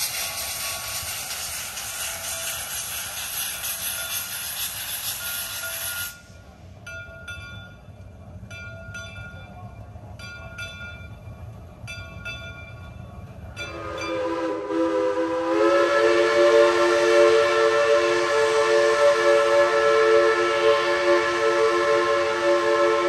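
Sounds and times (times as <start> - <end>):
light metallic clicks of train: 0.0 - 15.1
steam whistle chord: 13.6 - 23.0.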